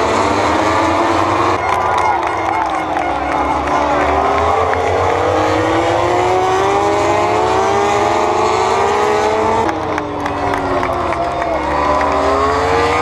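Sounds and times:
racing motorcycles passing: 0:00.0 - 0:13.0.

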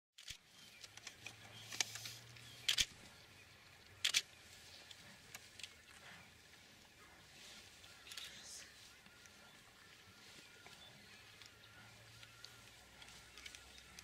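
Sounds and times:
camera shutter clicking: 0:02.7 - 0:02.9, 0:04.0 - 0:04.3.

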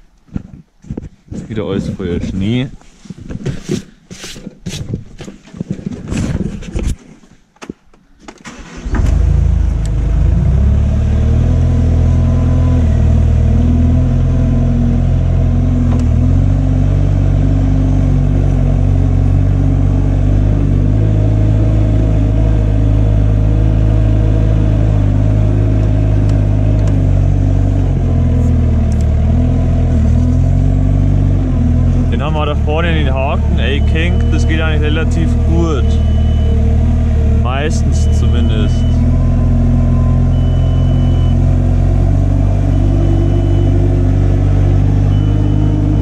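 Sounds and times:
knocks and rustles: 0:00.2 - 0:08.4
diesel engine running: 0:08.5 - 0:46.0.

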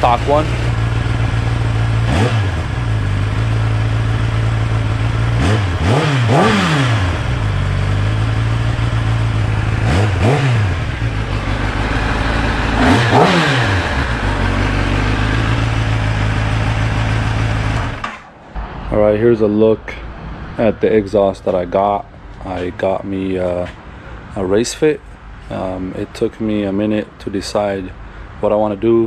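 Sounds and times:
motorcycle engine idling and revving: 0:00.0 - 0:18.9.

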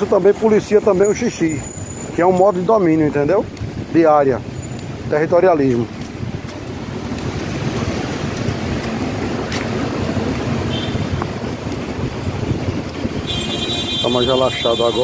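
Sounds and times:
passing traffic rumble: 0:00.0 - 0:15.0
wind on microphone: 0:05.8 - 0:14.0.

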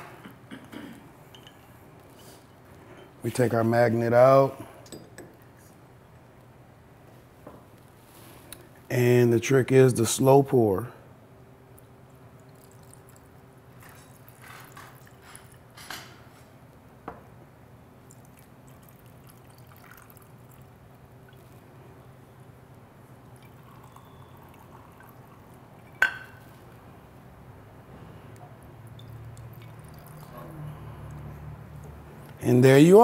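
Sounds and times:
glass clinks: 0:00.5 - 0:01.7, 0:25.9 - 0:26.4
liquid trickling into glass: 0:11.8 - 0:15.7, 0:18.0 - 0:21.7, 0:23.2 - 0:26.8, 0:28.6 - 0:31.2.

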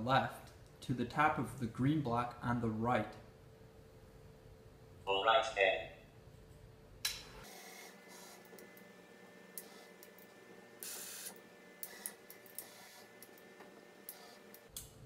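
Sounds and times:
steady electrical hum: 0:00.0 - 0:15.0
robotic arm motors whirring: 0:10.8 - 0:14.7.

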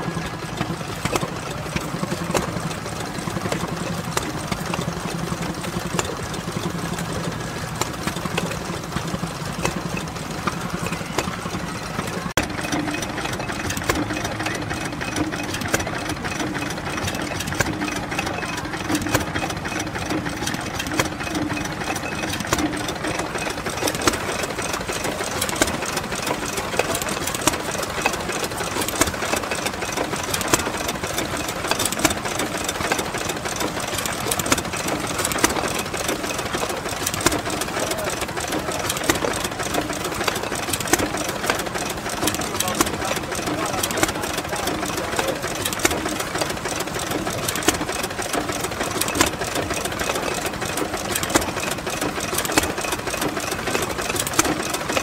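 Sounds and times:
pump engine knocking: 0:00.0 - 0:55.0.

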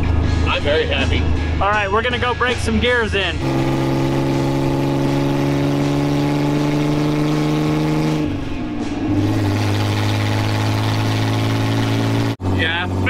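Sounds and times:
supercharged engine running: 0:03.3 - 0:13.0.

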